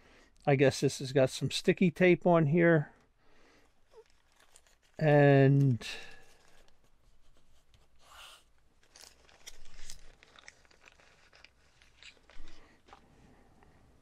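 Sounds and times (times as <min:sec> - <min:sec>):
plastic bag rustling: 0:03.7 - 0:05.0, 0:08.8 - 0:13.1.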